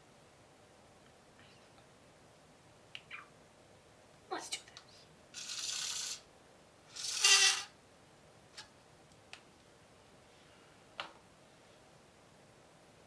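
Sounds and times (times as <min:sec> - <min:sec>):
dental floss zipping from dispenser: 0:05.4 - 0:06.2, 0:06.9 - 0:07.7.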